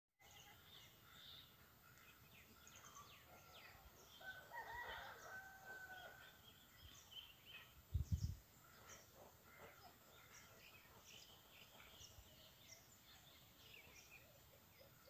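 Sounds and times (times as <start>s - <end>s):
small birds chirping: 0.2s - 15.0s
rooster crowing: 4.2s - 6.3s.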